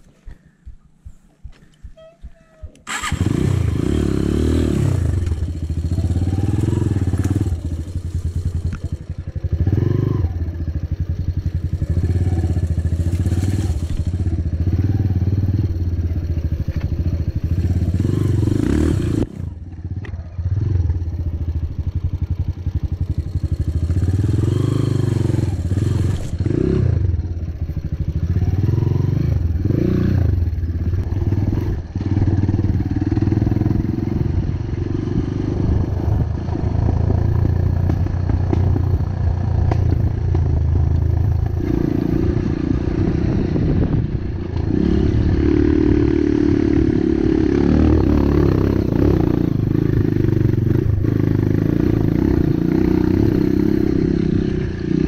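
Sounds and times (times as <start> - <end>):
motorcycle engine revving: 2.5 - 55.0.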